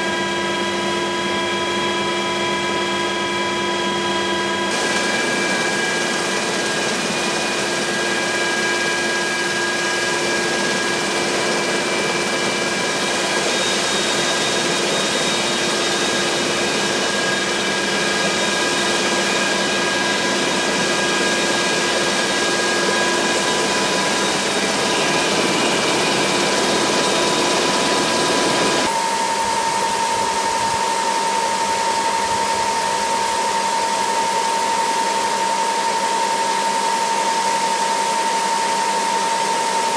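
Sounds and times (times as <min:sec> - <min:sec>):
helicopter turbine whine: 0:00.0 - 0:39.9.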